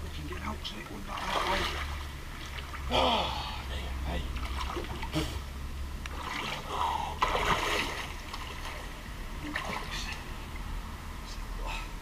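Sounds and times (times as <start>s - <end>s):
person wading through water: 0.9s - 3.7s, 6.1s - 10.7s.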